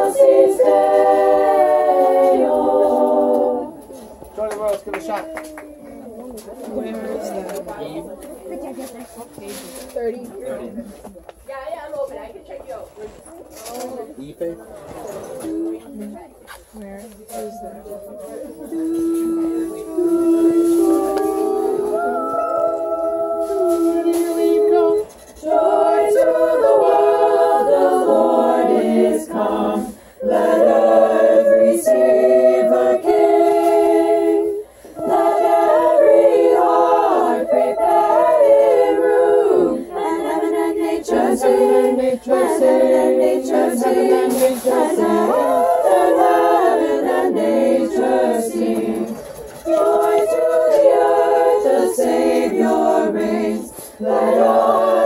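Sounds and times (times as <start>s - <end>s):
group singing a cappella: 0.0s - 4.3s, 17.4s - 55.0s.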